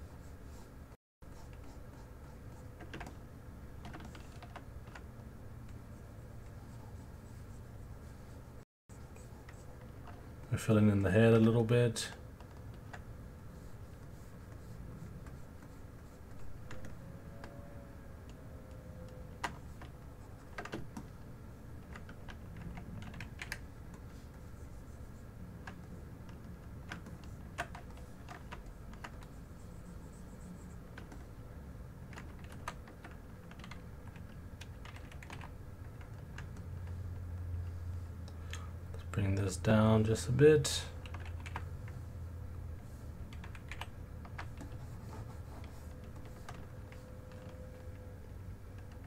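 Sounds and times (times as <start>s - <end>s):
low steady hum: 0.0s - 49.0s
keyboard and mouse clicks: 18.2s - 21.1s, 21.8s - 24.0s, 25.6s - 29.3s, 32.1s - 37.0s, 41.0s - 42.0s, 43.3s - 44.8s, 48.7s - 49.0s.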